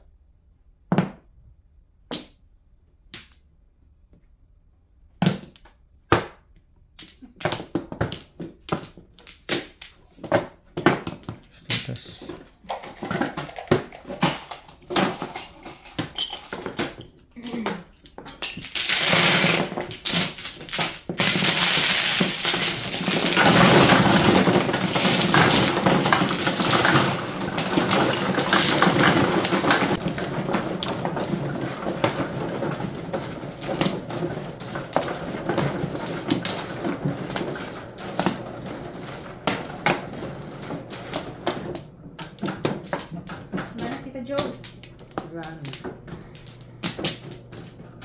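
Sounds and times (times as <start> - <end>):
mahjong tiles clattering: 11.8 - 48.0.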